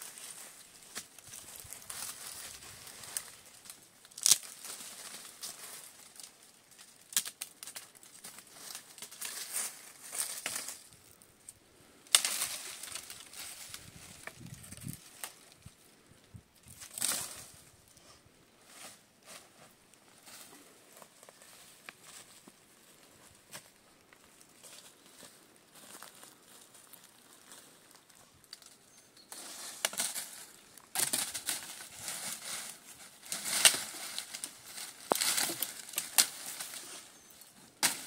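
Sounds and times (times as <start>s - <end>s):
footsteps crunching dry leaves: 0.0s - 6.5s
rustling leaves and twigs: 0.0s - 38.0s
branches snapping: 0.1s - 10.9s, 11.5s - 15.7s, 16.6s - 17.6s, 29.7s - 36.9s, 37.8s - 38.0s.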